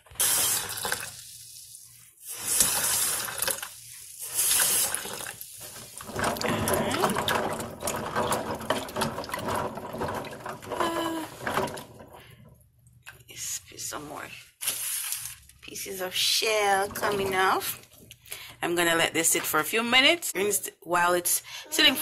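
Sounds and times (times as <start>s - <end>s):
water sloshing in plastic container: 4.4s - 12.3s.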